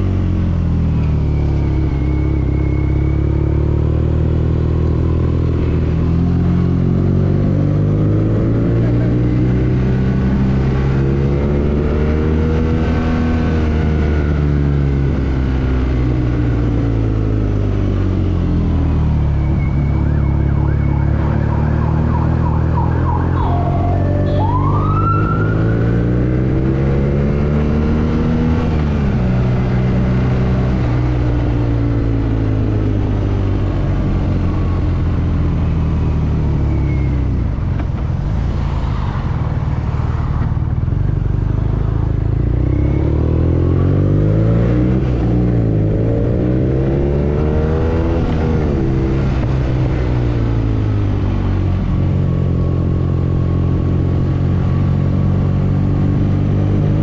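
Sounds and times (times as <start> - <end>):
motorcycle engine accelerating: 0.0 - 36.8
high warbling tone: 19.5 - 26.8.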